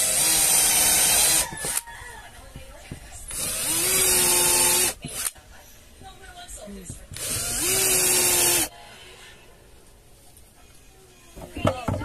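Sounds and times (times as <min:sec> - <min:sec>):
cordless drill boring into wood: 0:00.0 - 0:01.9, 0:03.3 - 0:05.3, 0:07.2 - 0:08.7.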